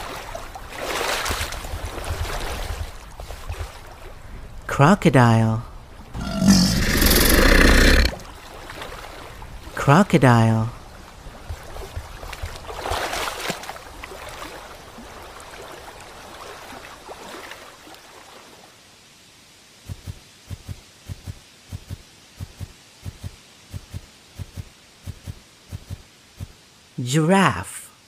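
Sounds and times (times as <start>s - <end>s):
running water: 0.0s - 19.2s.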